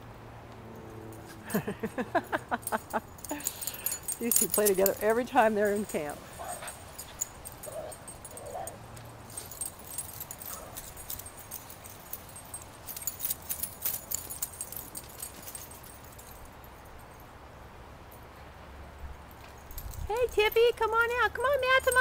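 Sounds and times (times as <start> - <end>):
dogs playing on grass: 0.5 - 17.2
collar tags jingling: 0.6 - 22.0.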